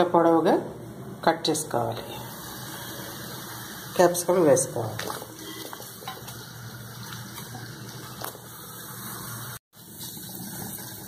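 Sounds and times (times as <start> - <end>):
vegetables sizzling in oil: 2.2 - 4.4, 5.5 - 11.0.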